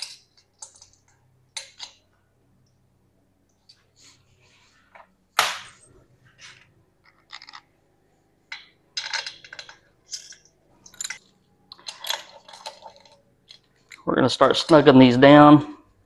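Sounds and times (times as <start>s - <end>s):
bolts clinking on metal: 8.5s - 14.0s.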